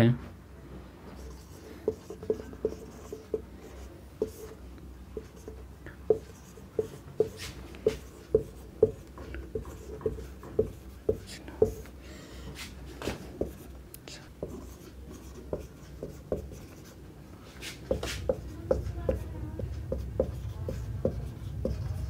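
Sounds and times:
marker squeaking on whiteboard: 0:01.2 - 0:04.6, 0:05.2 - 0:11.8, 0:14.4 - 0:17.0.

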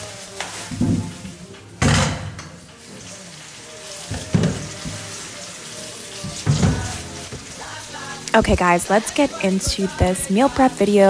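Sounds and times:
plastic bag rustling: 0:00.0 - 0:01.8
tap water splashing into sink: 0:04.1 - 0:05.2, 0:06.2 - 0:07.5.

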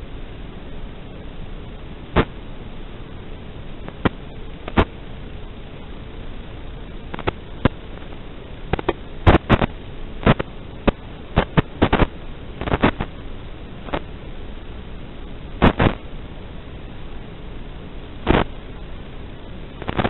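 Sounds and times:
steady radio hiss: 0:00.0 - 0:20.0
radio interference pops and crackles: 0:02.1 - 0:02.4, 0:03.8 - 0:05.0, 0:07.1 - 0:13.2, 0:13.8 - 0:14.1, 0:15.6 - 0:16.1, 0:18.2 - 0:18.6, 0:19.8 - 0:20.0.

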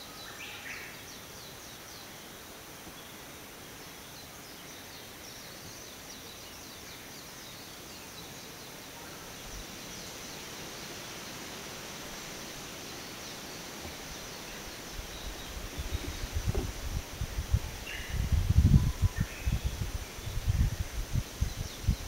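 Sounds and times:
wind through leaves: 0:00.0 - 0:22.0
small birds chirping: 0:02.9 - 0:22.0
low bumps: 0:13.8 - 0:17.7.

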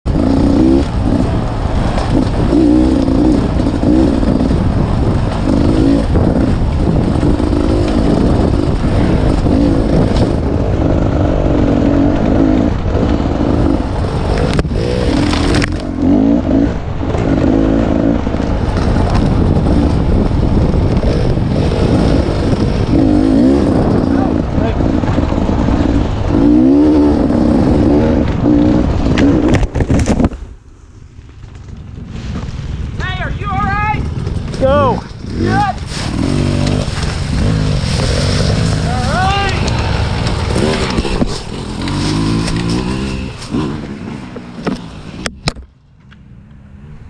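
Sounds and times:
dirt bike engine revving: 0:00.1 - 0:29.6, 0:34.0 - 0:45.2.

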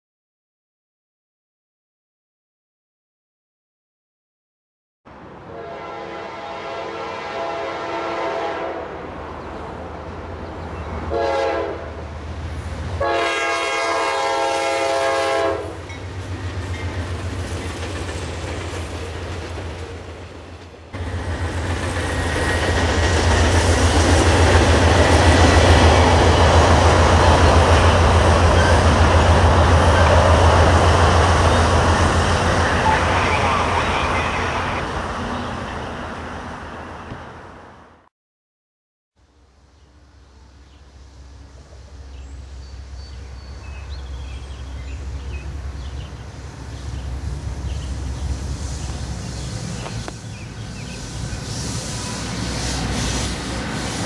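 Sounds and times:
locomotive air horn: 0:05.4 - 0:09.0, 0:11.1 - 0:12.0, 0:13.0 - 0:15.8
train wheels rumbling on rails: 0:09.1 - 0:37.4, 0:41.4 - 0:54.0.

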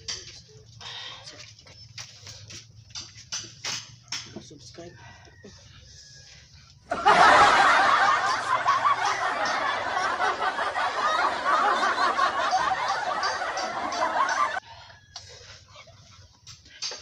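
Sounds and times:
canned laugh track: 0:06.9 - 0:14.6.

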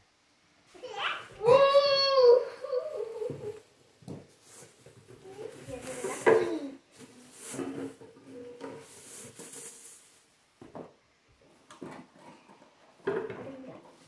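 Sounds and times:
plastic wrapping crinkling: 0:04.4 - 0:10.3.

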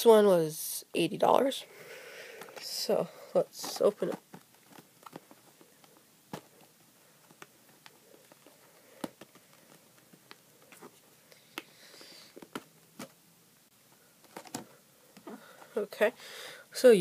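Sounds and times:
packaging rustle: 0:03.6 - 0:11.1.

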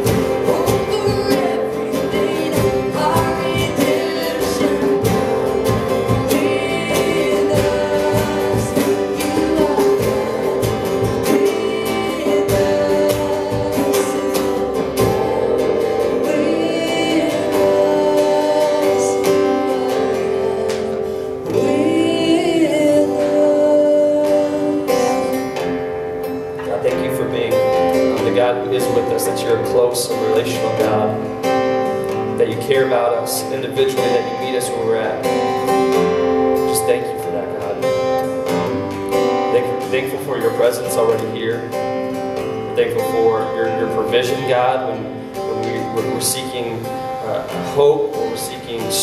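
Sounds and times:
woman singing: 0:00.0 - 0:25.8
strummed acoustic guitars: 0:00.0 - 0:49.0.

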